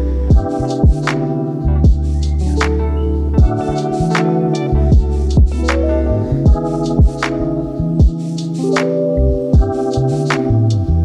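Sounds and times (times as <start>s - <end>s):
held chords: 0.0s - 11.0s
deep kick drum hits: 0.3s - 1.1s, 1.8s - 2.0s, 3.4s - 3.7s, 4.9s - 5.7s, 6.5s - 7.2s, 9.6s - 9.8s
sharp percussion hits: 4.9s - 7.4s.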